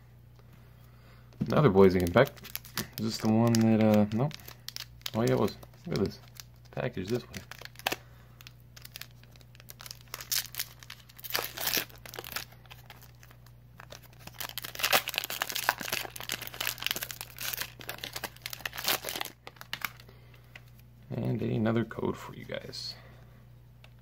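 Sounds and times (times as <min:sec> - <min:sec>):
faint low hum: 0:00.0 - 0:24.0
foil wrapper crinkling and tearing: 0:01.5 - 0:20.0.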